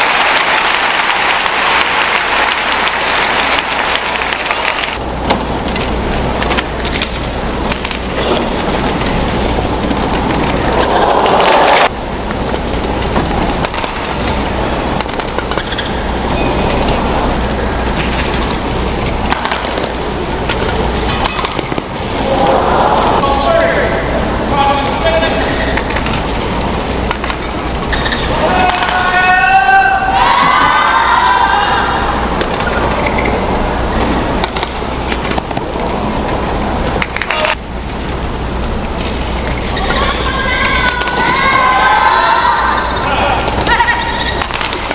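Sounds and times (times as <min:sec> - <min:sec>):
crowd murmur: 0:08.2 - 0:15.0, 0:21.8 - 0:29.0
arena crowd murmur: 0:10.3 - 0:12.2, 0:21.9 - 0:25.6
shoe squeak on court floor: 0:15.6 - 0:17.0
racket hitting shuttlecock: 0:19.2 - 0:22.1, 0:34.4 - 0:35.7.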